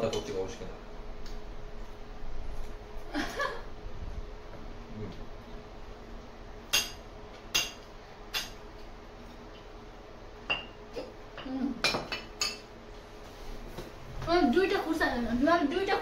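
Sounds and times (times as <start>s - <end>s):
spoons clinking against bowls: 11.8s - 12.7s.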